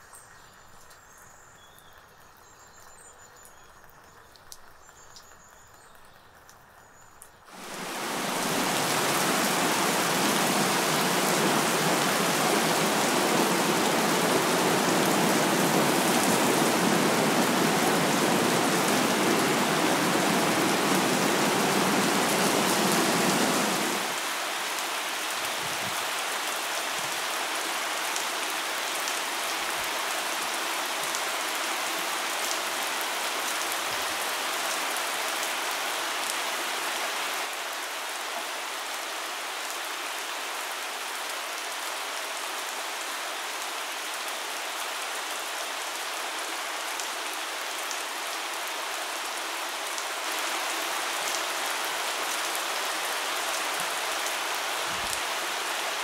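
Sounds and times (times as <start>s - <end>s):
steady rain hiss: 0.0s - 56.0s.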